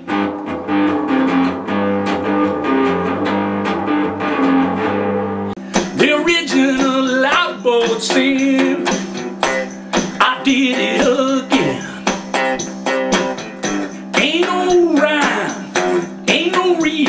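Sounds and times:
held low notes: 0.0s - 6.1s
bending wavering guitar notes: 0.0s - 17.0s
plucked and strummed guitar: 0.0s - 17.0s.

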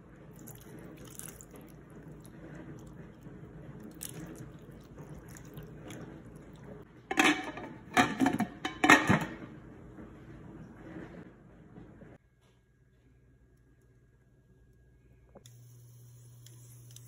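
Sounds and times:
broth pouring trickle: 0.3s - 3.0s.

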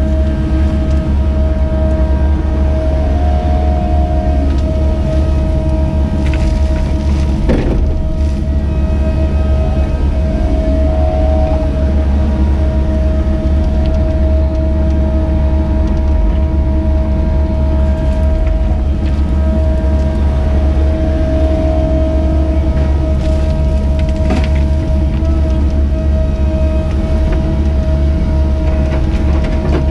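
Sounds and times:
diesel excavator engine droning: 0.0s - 29.9s.

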